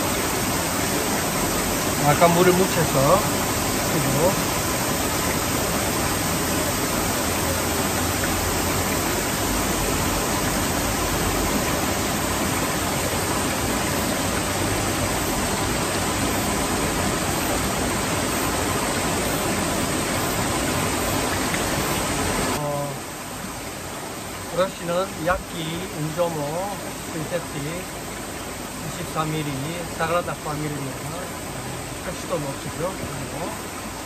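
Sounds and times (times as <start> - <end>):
stream rushing: 0.0 - 34.0.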